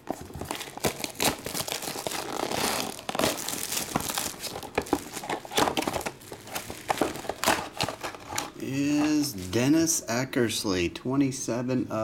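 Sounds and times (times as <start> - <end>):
plastic wrap crinkling and tearing: 0.0 - 8.6.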